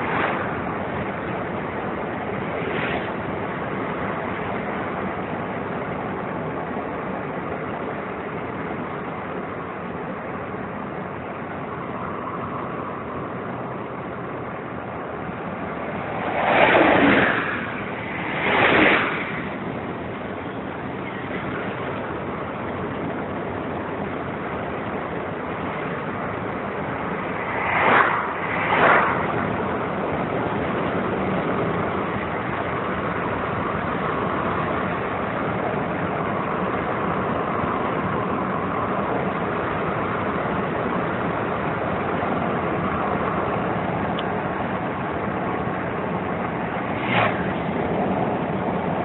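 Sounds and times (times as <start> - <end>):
loud whooshes: 0.0 - 0.8, 15.3 - 20.0, 27.0 - 30.0, 46.5 - 49.0
vehicle road and engine noise: 0.0 - 49.0.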